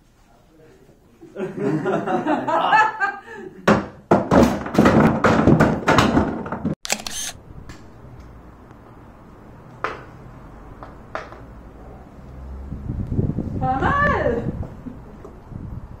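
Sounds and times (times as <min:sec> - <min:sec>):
hockey pucks tumbling and knocking: 0:04.1 - 0:06.8.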